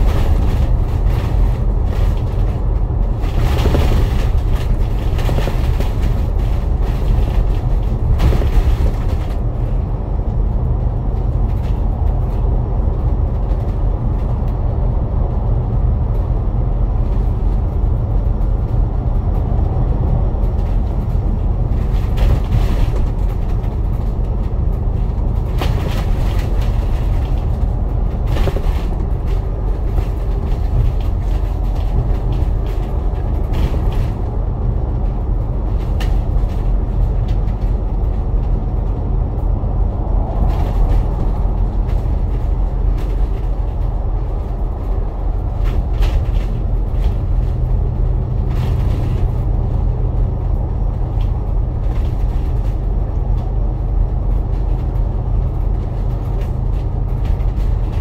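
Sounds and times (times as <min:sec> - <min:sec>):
bus engine and road rumble: 0:00.0 - 0:58.0.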